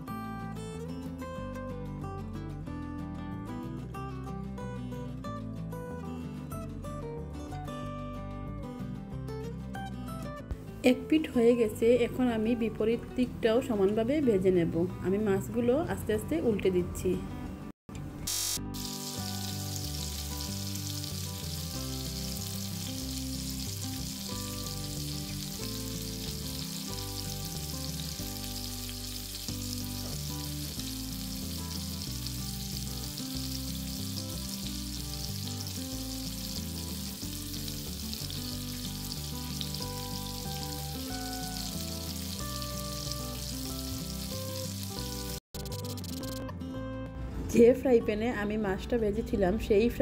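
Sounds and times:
soft background music: 0:00.0 - 0:50.0
fish sizzling in hot oil: 0:18.3 - 0:46.2.

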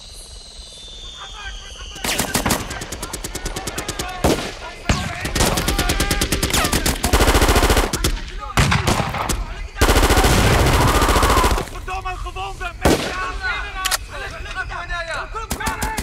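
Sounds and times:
rapid automatic gunfire: 0:02.0 - 0:12.0, 0:15.5 - 0:16.0.

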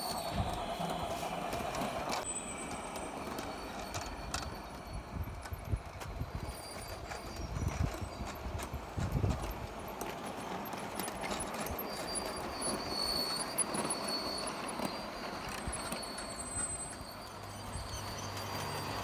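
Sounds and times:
model train rumbling: 0:00.0 - 0:19.0
wheels clicking over rail joints: 0:00.0 - 0:19.0.

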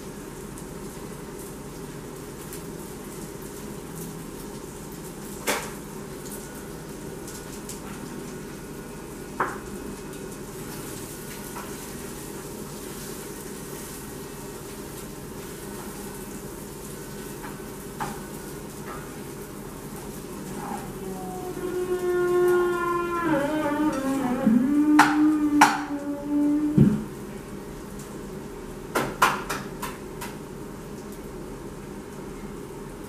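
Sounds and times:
food sizzling in a pan: 0:00.0 - 0:24.1.

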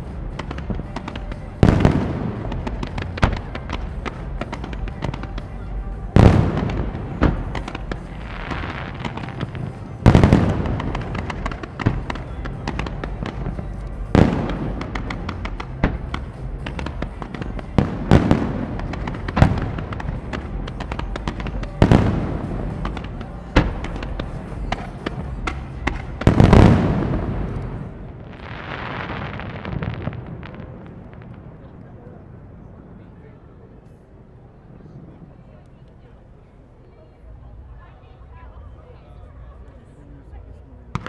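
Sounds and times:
fireworks popping and crackling: 0:00.0 - 0:32.5
fireworks booming: 0:00.0 - 0:33.3.

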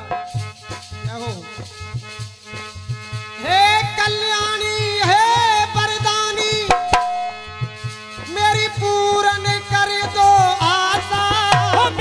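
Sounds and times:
man singing folk song: 0:03.4 - 0:07.0, 0:08.2 - 0:12.0
hand drum strokes: 0:06.0 - 0:09.4.

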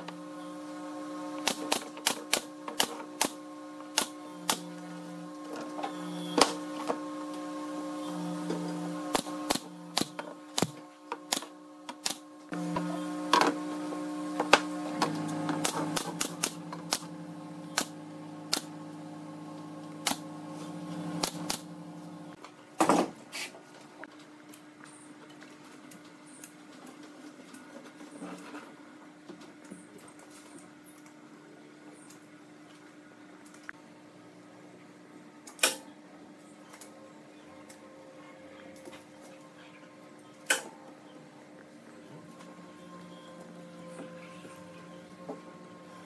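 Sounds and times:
machine hum: 0:00.0 - 0:22.4, 0:36.0 - 0:46.0.

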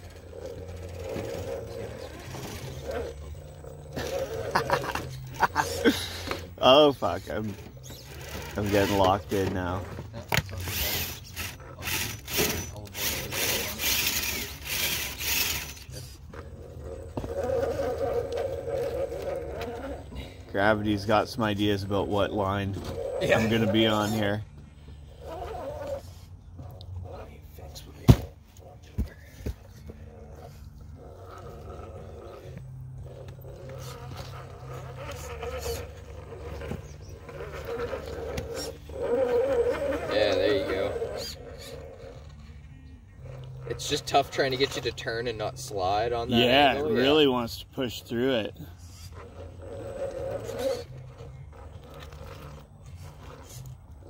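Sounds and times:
rc car motor whirring: 0:00.0 - 0:28.7, 0:29.4 - 0:54.0.

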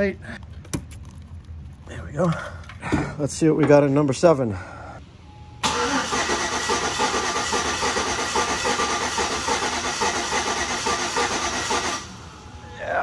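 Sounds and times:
engine cranking on starter: 0:05.6 - 0:12.1.

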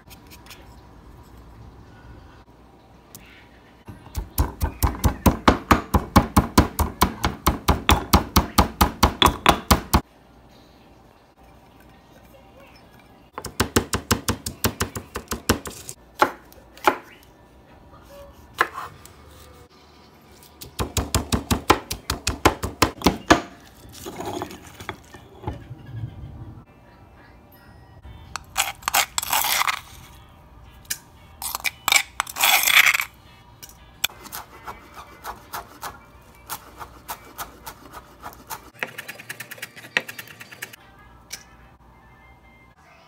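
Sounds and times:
pestle pounding in stone mortar: 0:04.2 - 0:10.0, 0:20.8 - 0:23.6
metal utensil scraping stone: 0:28.4 - 0:30.2, 0:31.4 - 0:33.2.

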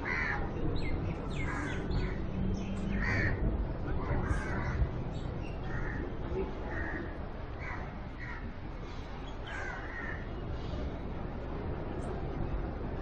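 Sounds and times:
crows cawing: 0:00.0 - 0:00.5, 0:01.5 - 0:02.2, 0:03.0 - 0:03.4, 0:04.2 - 0:04.9, 0:05.6 - 0:06.1, 0:06.7 - 0:08.5, 0:09.4 - 0:10.3.

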